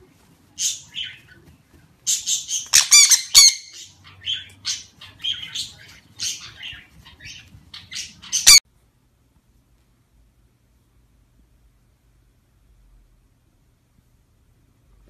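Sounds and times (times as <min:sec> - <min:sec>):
parrot squawking: 0:02.1 - 0:08.6.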